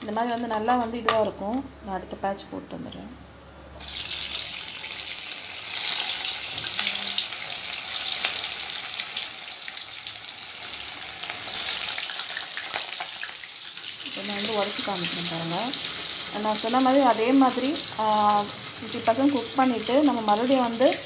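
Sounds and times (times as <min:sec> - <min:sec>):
potato balls sizzling in hot oil: 0:03.8 - 0:21.0.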